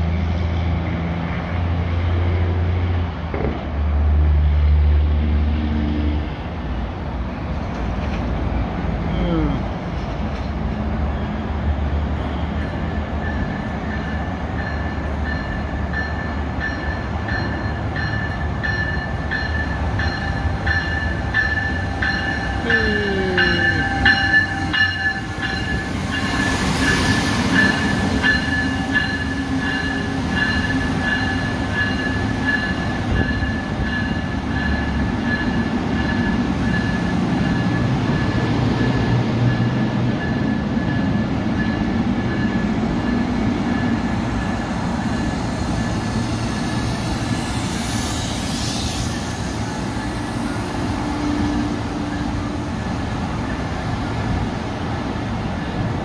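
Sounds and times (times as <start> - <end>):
rush of passing train: 0.0 - 56.0
train wheels rumbling on rails: 0.0 - 56.0
locomotive tone dropping in pitch: 10.8 - 54.2.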